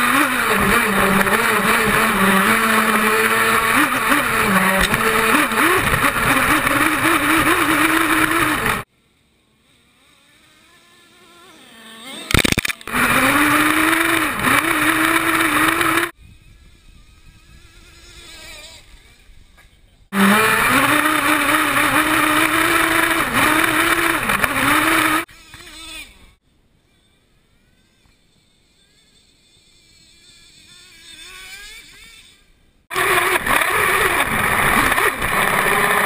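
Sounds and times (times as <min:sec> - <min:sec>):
faint engine rising in pitch: 0:00.0 - 0:08.9, 0:10.0 - 0:16.2, 0:20.1 - 0:26.0
nitro engine running loud: 0:00.0 - 0:08.9, 0:10.0 - 0:16.2, 0:20.1 - 0:25.3, 0:32.9 - 0:36.0.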